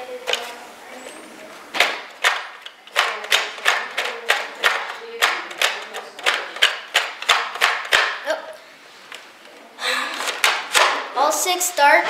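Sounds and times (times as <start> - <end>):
rapid plastic clicking: 1.8 - 8.2.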